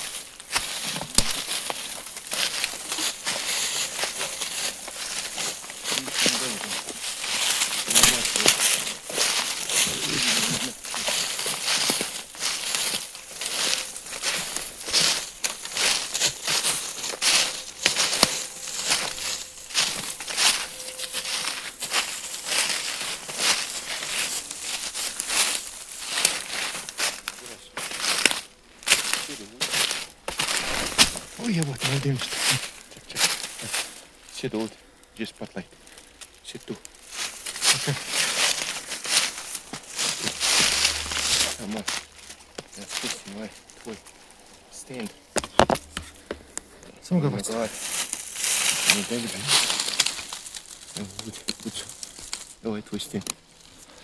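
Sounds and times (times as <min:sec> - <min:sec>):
sharp crack: 0:00.0 - 0:03.0, 0:07.5 - 0:11.0
footsteps crunching through dry leaves: 0:00.0 - 0:34.7, 0:35.4 - 0:54.0.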